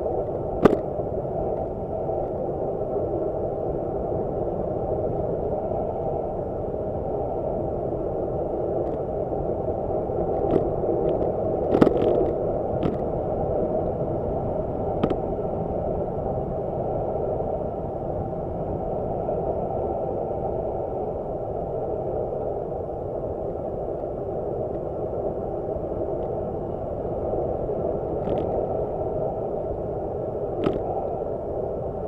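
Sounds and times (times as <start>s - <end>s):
bike road noise: 0.0s - 2.3s, 9.8s - 16.0s, 28.2s - 28.8s, 30.6s - 31.2s
wind rush: 0.0s - 32.0s
sharp knocks from road bumps: 0.6s - 0.8s.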